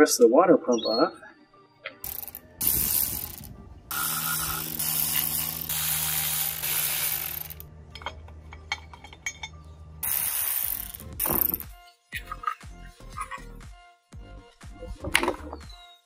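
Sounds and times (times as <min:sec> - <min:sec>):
cordless ratchet spinning: 0:02.0 - 0:07.7, 0:10.0 - 0:11.7.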